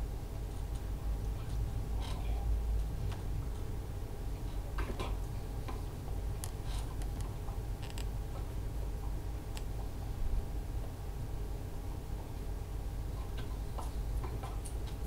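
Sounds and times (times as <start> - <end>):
low room hum: 0.0 - 15.0
faint clicks and taps: 4.8 - 9.9, 13.1 - 15.0.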